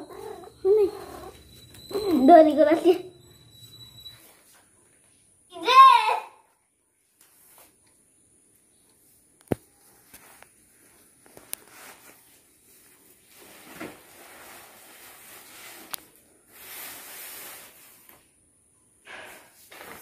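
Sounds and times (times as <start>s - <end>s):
plastic mat rustling and scraping: 9.7s - 18.4s, 19.2s - 20.0s.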